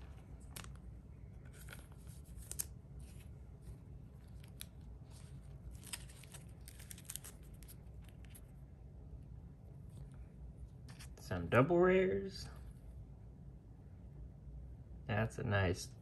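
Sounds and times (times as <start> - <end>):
trading cards in plastic sleeves rustling: 0.0 - 8.6.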